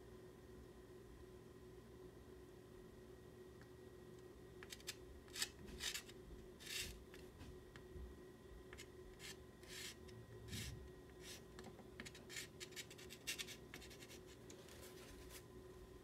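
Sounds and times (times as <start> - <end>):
pastel scratching on paper: 4.7 - 7.0, 8.8 - 11.4, 12.0 - 15.4.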